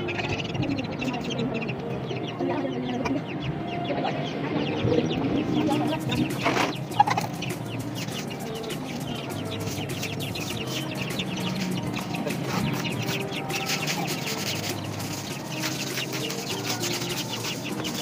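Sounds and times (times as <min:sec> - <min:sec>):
chickens clucking: 0:00.0 - 0:18.0.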